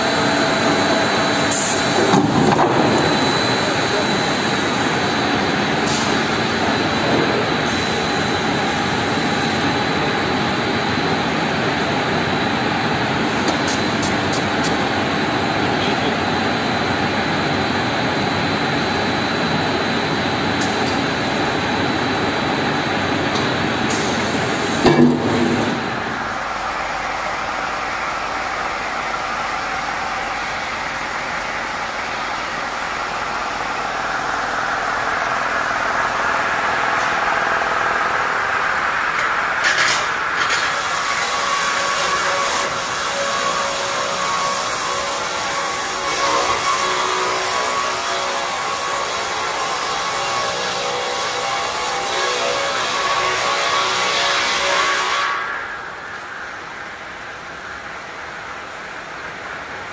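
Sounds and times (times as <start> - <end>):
saw machine running: 0.0 - 55.8.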